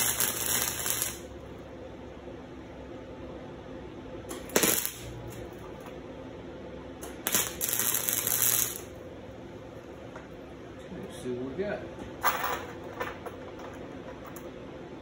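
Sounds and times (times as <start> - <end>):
electric arc welding: 0.0 - 1.4, 4.3 - 5.6, 7.0 - 9.0.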